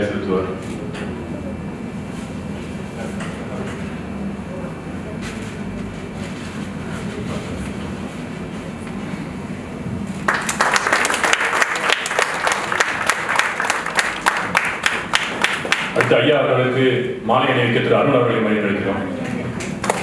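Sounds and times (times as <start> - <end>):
low room rumble: 0.0 - 20.0
audience applause: 10.3 - 16.1.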